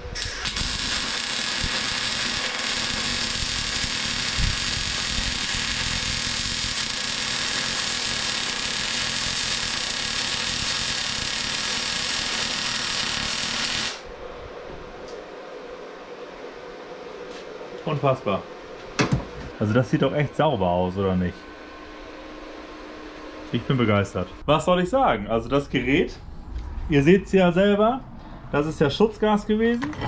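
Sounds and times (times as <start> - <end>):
welding arc sizzling crackle: 0.0 - 14.1.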